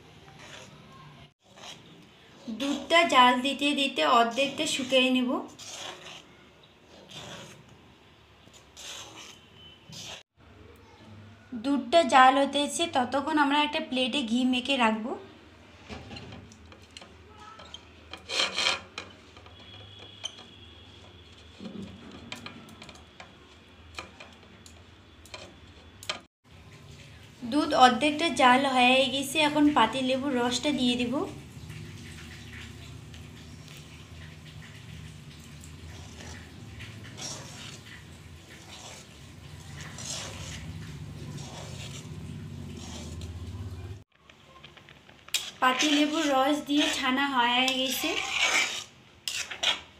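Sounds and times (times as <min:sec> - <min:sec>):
brush scraping plate: 0:00.3 - 0:03.2, 0:04.2 - 0:07.7, 0:08.5 - 0:10.2, 0:17.7 - 0:23.1, 0:33.4 - 0:43.8, 0:45.3 - 0:49.9
liquid sloshing: 0:31.3 - 0:43.9.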